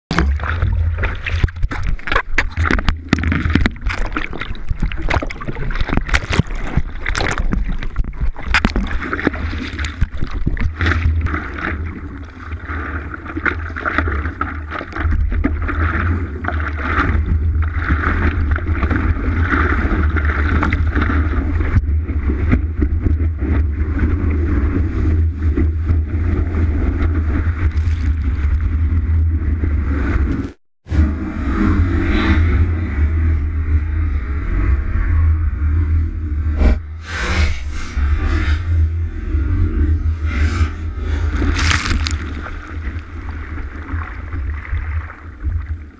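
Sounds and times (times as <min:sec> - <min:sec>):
water rushing and splashing: 0:00.1 - 0:26.0, 0:41.2 - 0:45.9
wind rumble on camera: 0:00.4 - 0:12.4, 0:13.0 - 0:45.9.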